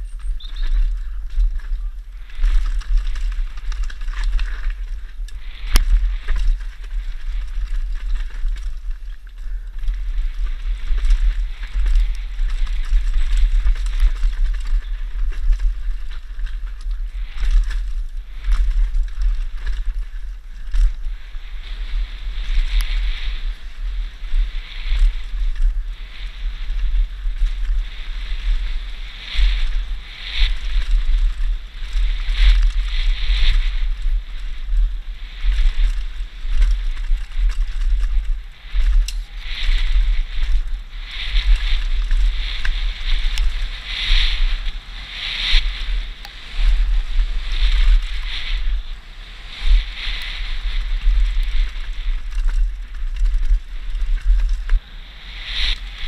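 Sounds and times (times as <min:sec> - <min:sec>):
bike clicking and knocking over bumps: 0:00.0 - 0:21.0, 0:52.2 - 0:54.8
wind buffeting microphone: 0:00.0 - 0:56.0.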